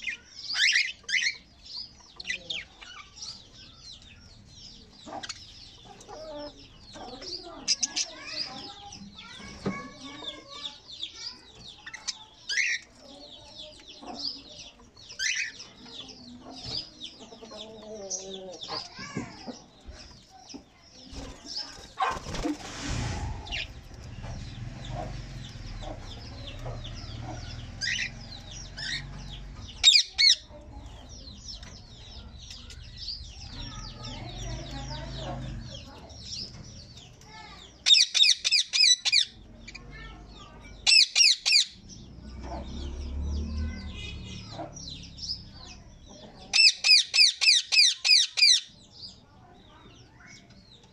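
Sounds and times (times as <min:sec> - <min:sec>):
sharp bird calls: 0:00.0 - 0:49.2
birds chirping and chattering: 0:00.0 - 0:50.9
wings fluttering: 0:21.0 - 0:28.2.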